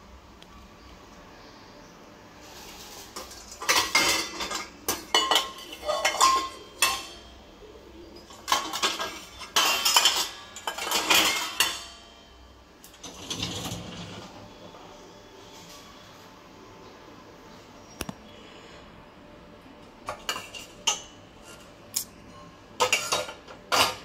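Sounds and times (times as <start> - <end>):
metal pots clattering in dishwasher: 2.8 - 7.5, 8.1 - 14.7, 20.0 - 21.7, 22.8 - 24.0.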